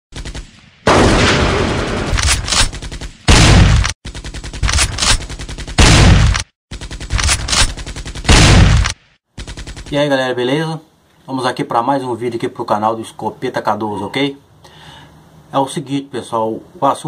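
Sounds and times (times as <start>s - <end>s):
gunshots: 0.1s - 10.0s
heavy booms: 0.8s - 2.2s, 3.3s - 3.9s.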